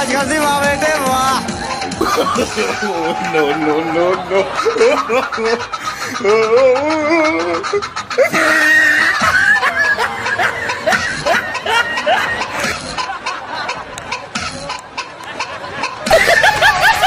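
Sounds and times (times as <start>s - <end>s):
crowd of men laughing: 0.2s - 17.0s
men shouting: 0.4s - 7.7s.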